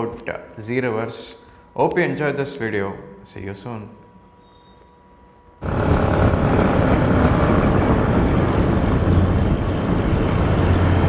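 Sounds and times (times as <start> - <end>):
low rumble of vehicles running: 5.6 - 11.0.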